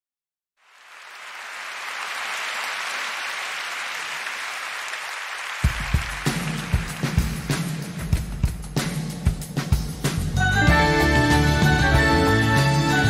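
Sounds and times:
audience applauding: 0.6s - 8.2s
drum kit hits: 5.6s - 12.2s.

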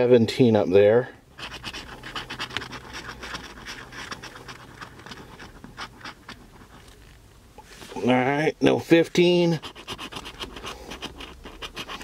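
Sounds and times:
scratching lottery ticket: 1.4s - 7.2s, 8.8s - 12.0s.

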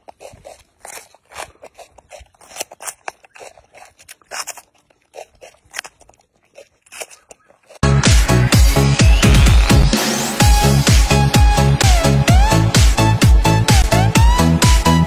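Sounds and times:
monkey crunching pepper: 0.0s - 8.5s
electronic dance music: 7.8s - 15.0s.

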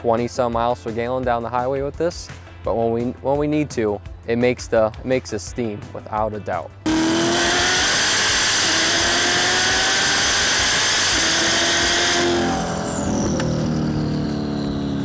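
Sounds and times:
car engine accelerating hard: 6.9s - 15.0s.

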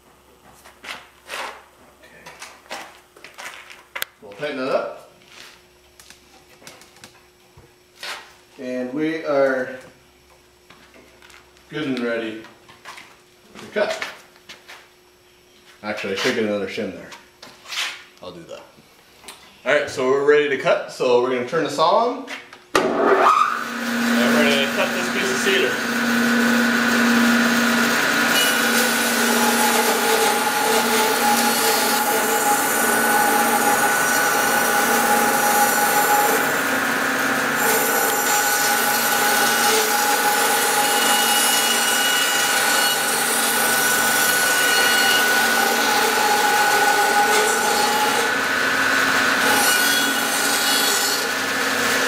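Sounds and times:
bandsaw cutting a log: 22.8s - 52.0s.

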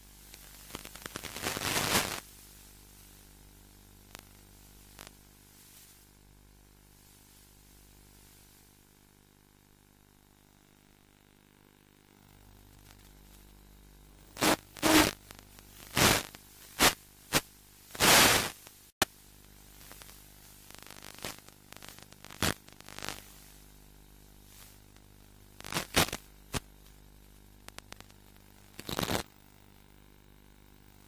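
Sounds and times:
radio static bursts: 0.0s - 2.2s, 14.3s - 19.0s, 19.6s - 26.7s, 27.4s - 29.3s
faint steady hum: 0.0s - 31.0s.

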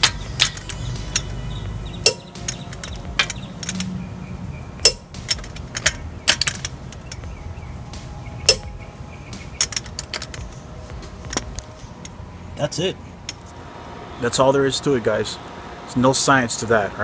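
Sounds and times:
torque wrench clicking: 0.0s - 1.4s, 2.0s - 4.0s, 4.8s - 7.3s, 9.3s - 10.6s.

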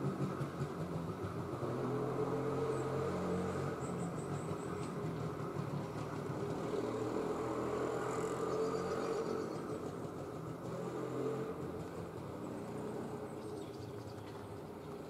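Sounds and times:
low engine rumble: 0.0s - 15.0s.

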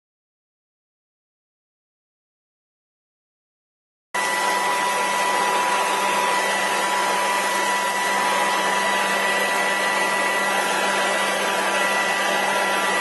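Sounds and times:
electric fan motor whine: 4.2s - 13.0s.

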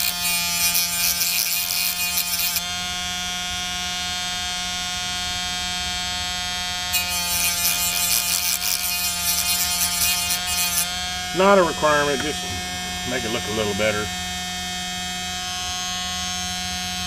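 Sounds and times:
rough grinding of metal: 0.0s - 2.8s, 6.9s - 15.9s
rotary tool high whine: 0.0s - 17.0s.

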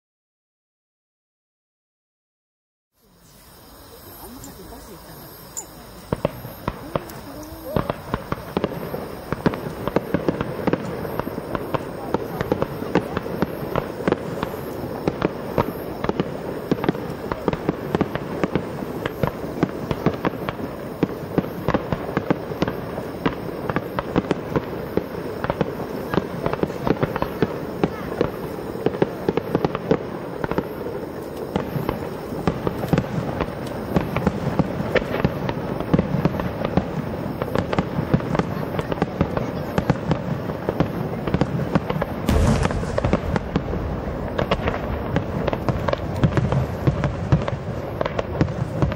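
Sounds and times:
fireworks launching and bursting: 3.2s - 48.9s.

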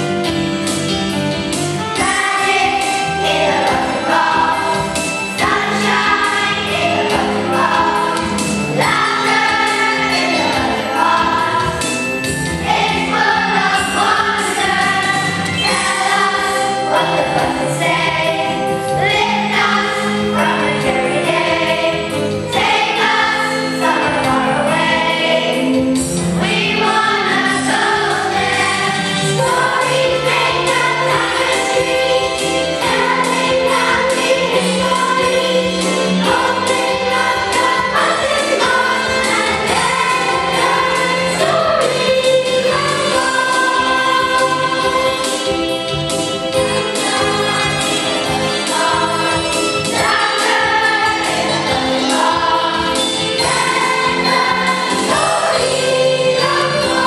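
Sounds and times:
children singing: 1.9s - 25.8s, 26.4s - 57.0s.

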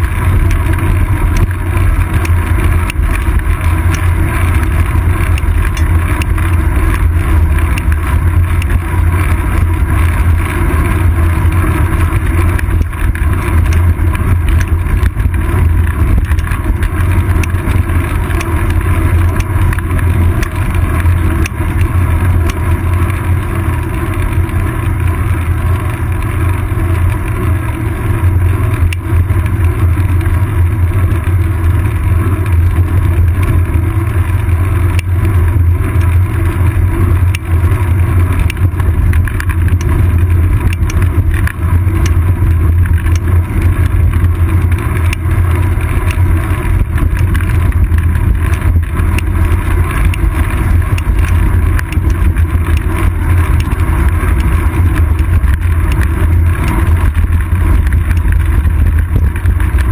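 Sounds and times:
faint ticks from road bumps: 0.0s - 59.9s
wind and road rumble: 0.0s - 59.9s.

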